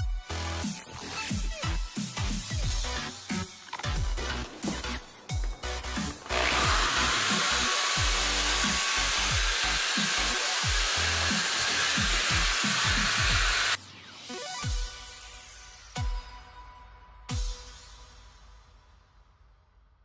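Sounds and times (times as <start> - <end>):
electric drill boring into wood: 6.1 - 13.8
electronic music with bass sweeps: 13.8 - 16.3.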